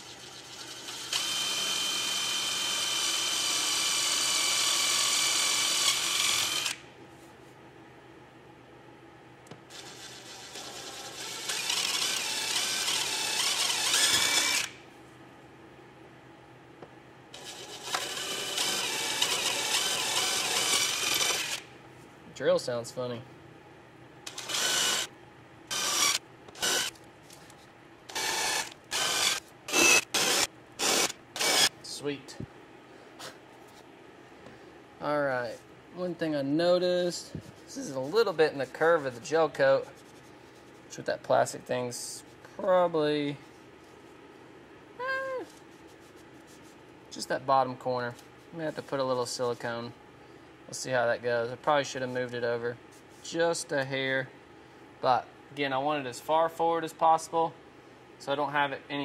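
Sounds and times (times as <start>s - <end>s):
cordless drill whining: 0.8s - 6.8s, 9.7s - 14.7s, 17.4s - 21.6s, 24.3s - 25.1s, 25.7s - 26.9s, 28.1s - 31.7s.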